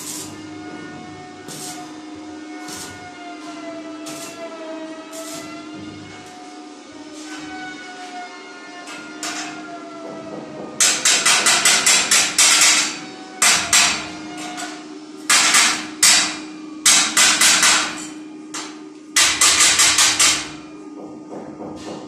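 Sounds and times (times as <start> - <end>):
hammer striking steel: 10.8 - 14.6, 15.3 - 20.7.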